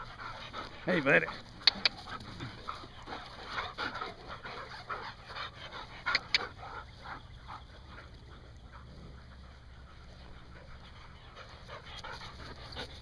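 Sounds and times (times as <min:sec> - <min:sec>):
dogs panting: 0:00.0 - 0:13.0
sharp clicks: 0:01.6 - 0:02.0, 0:06.0 - 0:06.5.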